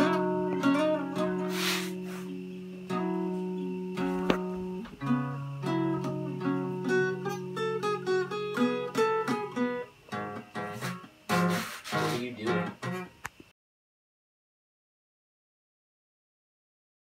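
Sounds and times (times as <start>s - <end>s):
fingerpicked acoustic guitar: 0.0s - 13.5s.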